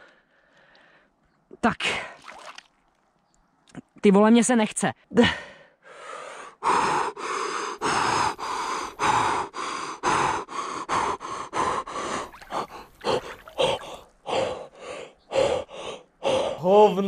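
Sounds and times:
man gasping: 0:05.2 - 0:16.6.

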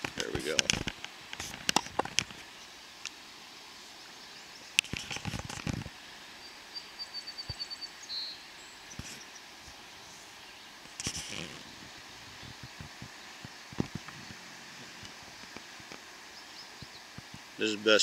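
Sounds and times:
outdoor hiss: 0:00.0 - 0:18.0
rustling: 0:04.8 - 0:06.0, 0:08.9 - 0:16.2
bird chirp: 0:06.4 - 0:11.5, 0:16.3 - 0:17.2.

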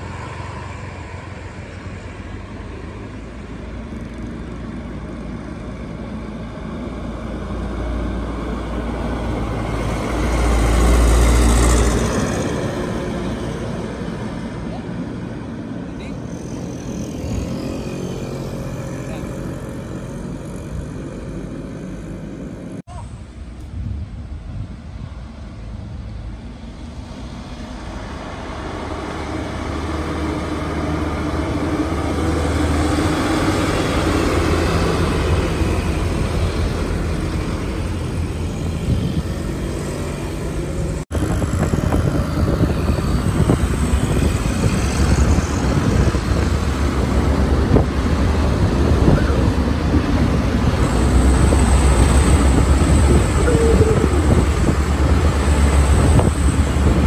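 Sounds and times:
diesel truck engine: 0:00.0 - 0:57.0
road noise: 0:00.0 - 0:57.0
motorcycle passing: 0:16.0 - 0:22.7.

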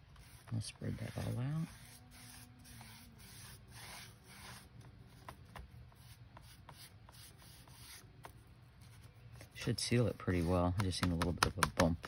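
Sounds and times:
foam brush rubbing strokes: 0:00.0 - 0:04.8, 0:05.9 - 0:08.0, 0:08.8 - 0:10.8.

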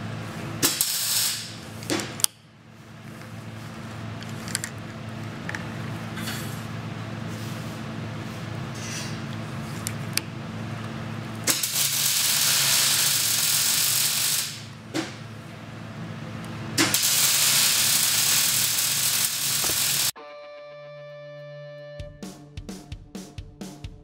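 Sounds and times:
low workshop hum: 0:00.0 - 0:20.2
bench shear cutting sheet steel: 0:11.5 - 0:14.7, 0:16.8 - 0:20.2
music: 0:20.2 - 0:24.0.

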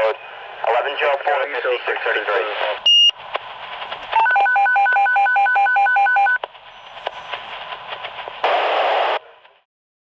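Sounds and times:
radio hiss: 0:00.0 - 0:04.2, 0:06.6 - 0:09.6.

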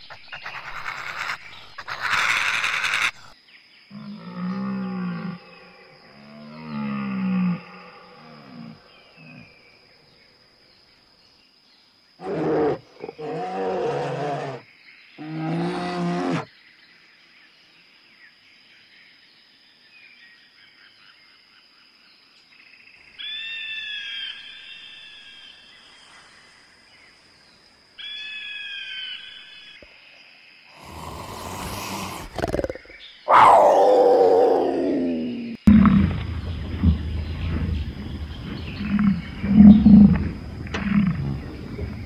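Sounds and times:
low wavering animal calls: 0:12.2 - 0:14.6, 0:15.2 - 0:16.5, 0:31.1 - 0:42.0
high-pitched animal cries: 0:33.3 - 0:35.1.

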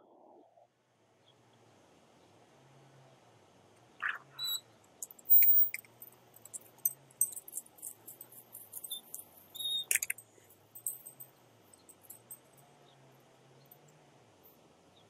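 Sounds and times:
bird chirps: 0:04.0 - 0:05.9, 0:08.8 - 0:10.1.

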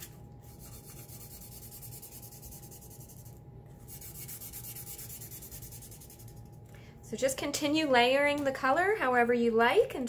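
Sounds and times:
marker scribbling on paper: 0:00.5 - 0:06.4.

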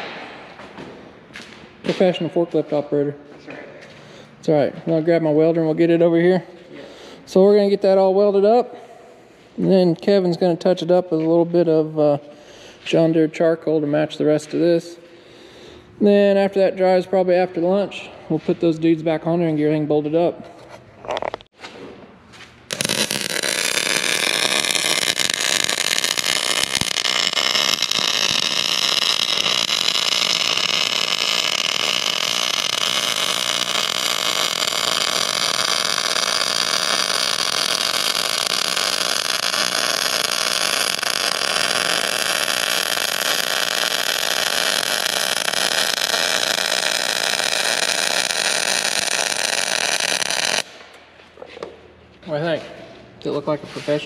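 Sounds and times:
arc welding crackle: 0:22.7 - 0:50.8.

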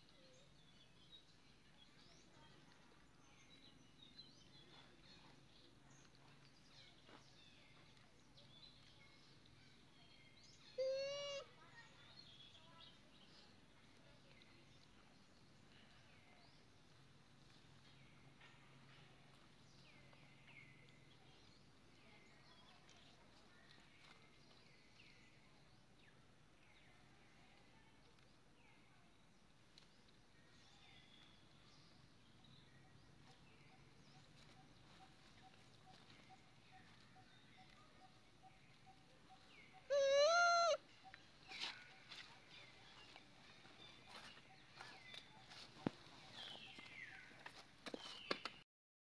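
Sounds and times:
faint high animal calls: 0:10.7 - 0:11.6, 0:39.7 - 0:40.8.

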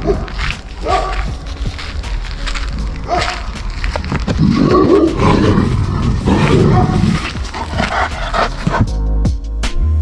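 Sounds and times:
dog growling low and rough: 0:04.3 - 0:09.0.

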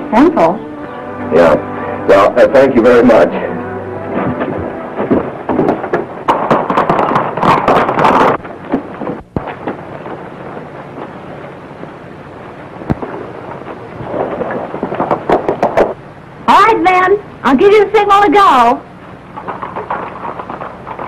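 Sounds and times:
crackling hiss with sharp clicks: 0:05.1 - 0:21.0.

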